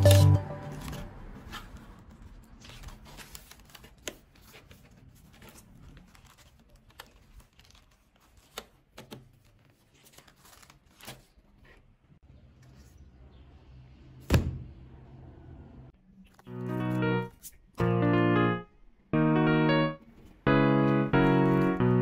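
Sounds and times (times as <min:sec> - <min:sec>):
notebook pages flipping: 0:00.0 - 0:11.9, 0:16.2 - 0:17.6, 0:20.1 - 0:21.8
paper rustling and shuffling: 0:00.0 - 0:11.9, 0:20.1 - 0:21.9.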